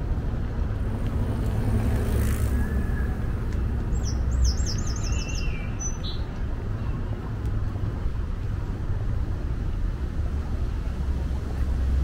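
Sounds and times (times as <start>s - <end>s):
distant traffic rumble: 0.0s - 12.0s
songbird singing high notes: 3.9s - 6.2s.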